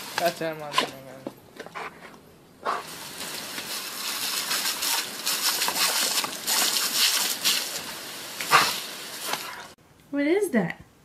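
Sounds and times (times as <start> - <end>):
hose water spraying on concrete: 0.0 - 1.2, 2.6 - 9.8.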